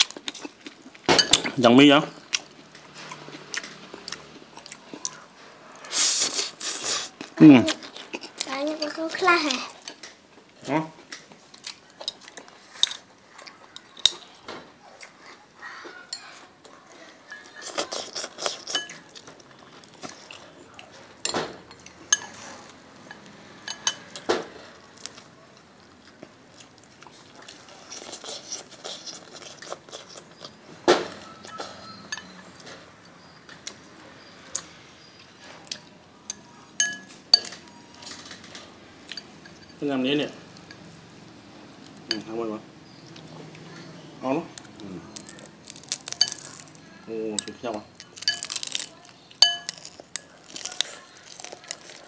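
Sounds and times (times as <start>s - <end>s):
cutlery clinking against dishes: 0.3s - 1.6s, 17.3s - 19.4s, 21.2s - 24.7s, 30.9s - 32.8s, 35.6s - 39.9s, 42.1s - 42.3s, 47.4s - 48.8s, 49.4s - 50.3s.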